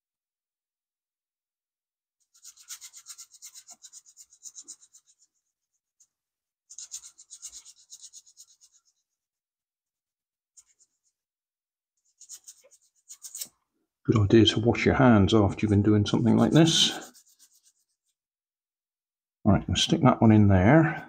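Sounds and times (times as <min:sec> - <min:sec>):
sandpaper rubbing on metal: 0:02.3 - 0:05.2, 0:06.7 - 0:08.9, 0:12.1 - 0:13.5, 0:16.2 - 0:18.1.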